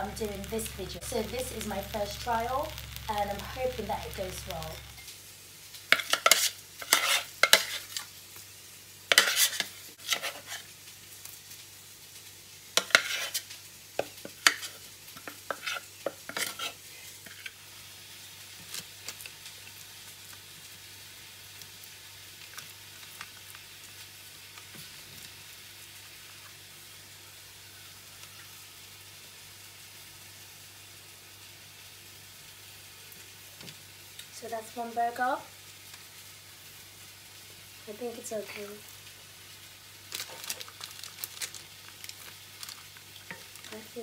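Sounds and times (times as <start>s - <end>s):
metal spoon scraping ceramic bowl: 6.0s - 7.8s.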